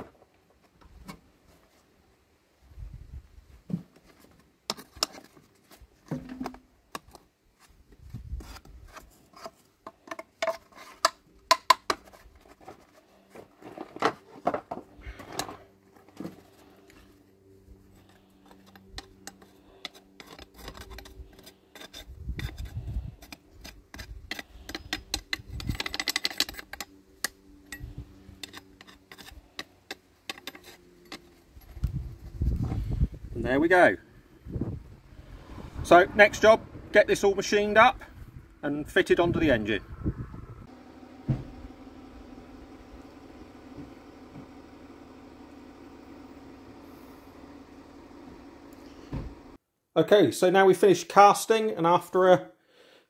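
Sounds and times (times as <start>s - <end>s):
crunching and scraping of mould lumps: 3.6s - 17.2s, 17.8s - 33.0s
metal rod clinking on metal: 24.3s - 26.9s.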